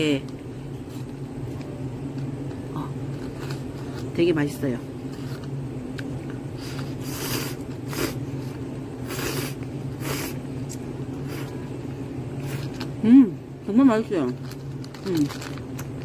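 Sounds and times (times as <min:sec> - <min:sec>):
noodles being slurped: 0:06.6 - 0:10.4.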